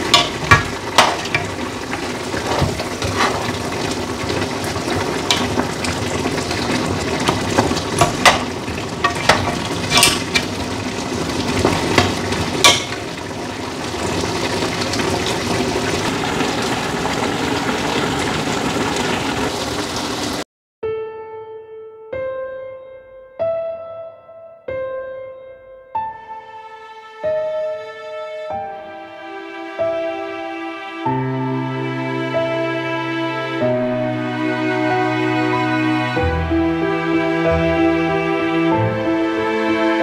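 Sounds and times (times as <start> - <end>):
piano music: 0.0 - 17.8, 20.8 - 40.0
sauce sizzling and bubbling: 0.0 - 20.4
spatula knocking against pot: 0.1 - 1.5, 7.6 - 10.5.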